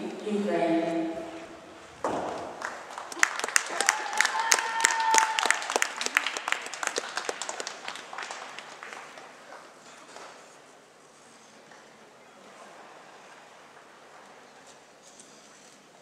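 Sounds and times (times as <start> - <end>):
audience applause: 2.2 - 9.6.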